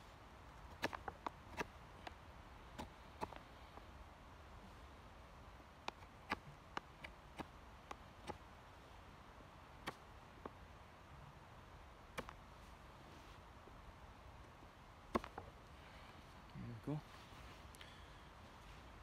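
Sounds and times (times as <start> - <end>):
faint hiss: 7.0 - 19.0.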